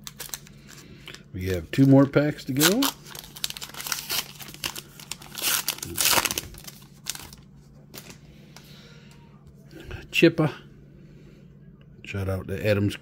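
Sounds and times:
card pack wrapper tearing: 0.0s - 1.2s, 1.8s - 8.2s
wrapper crinkling and rustling: 0.0s - 8.2s.

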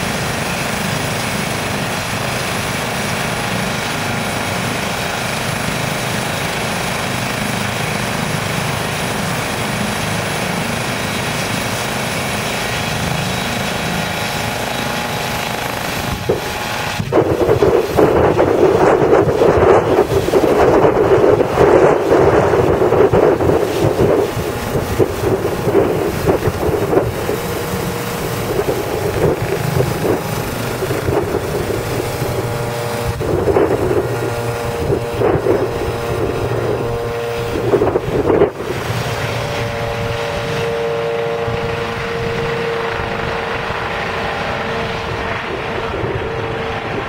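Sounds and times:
helicopter engine and rotors: 0.0s - 47.0s
tail fan whine: 0.0s - 47.0s
wind buffeting microphone: 0.0s - 47.0s.

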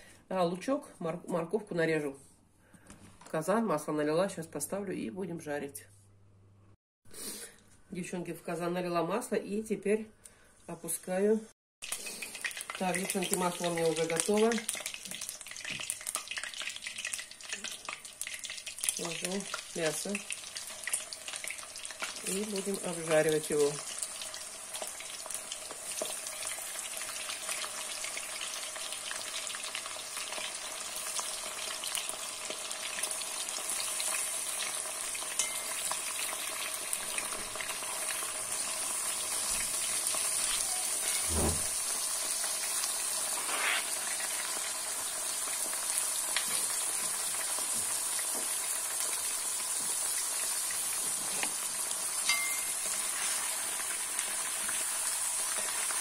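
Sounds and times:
meat sizzling in hot oil: 11.8s - 56.0s.

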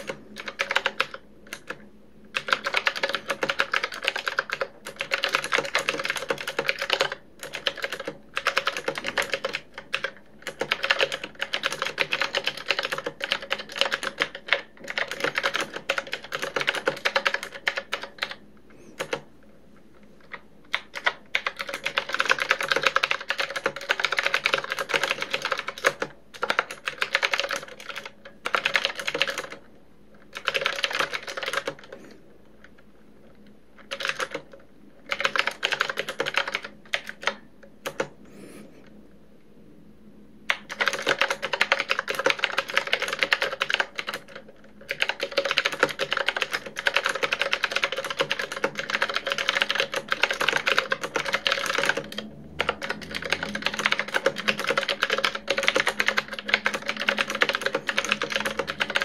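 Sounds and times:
mechanical keyboard typing: 0.0s - 19.3s, 20.2s - 38.2s, 40.5s - 59.0s.

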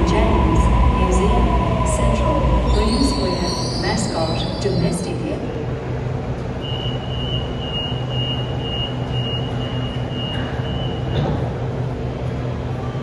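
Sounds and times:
electric train hum: 0.0s - 13.0s
high-pitched train squeal: 2.6s - 5.0s, 6.6s - 11.2s.

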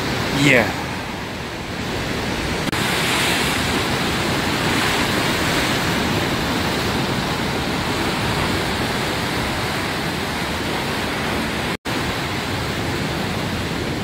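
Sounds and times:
ocean waves and surf: 0.0s - 14.0s
wind: 0.0s - 14.0s.

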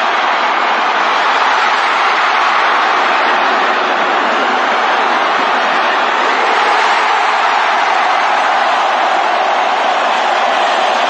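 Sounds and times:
stadium crowd noise: 0.0s - 11.0s.

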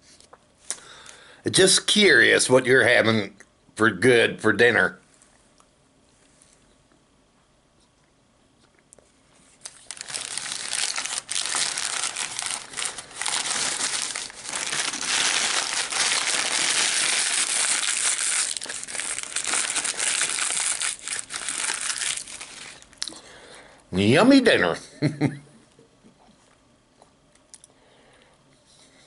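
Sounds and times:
paper packaging crumpling: 9.6s - 23.0s.

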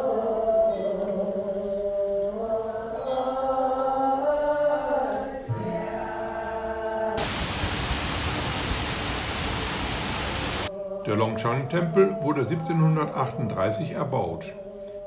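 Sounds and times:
chant-like vocal music: 0.0s - 15.0s
loud steady hiss: 7.2s - 10.7s.

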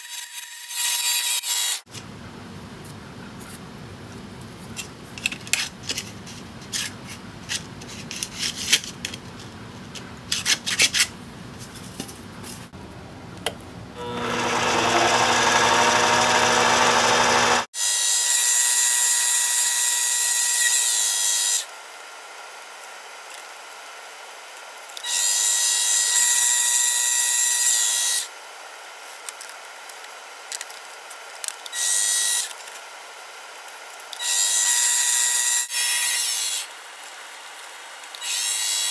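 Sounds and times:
lathe cutting hiss: 14.0s - 17.7s
lathe motor whine: 14.0s - 17.7s.

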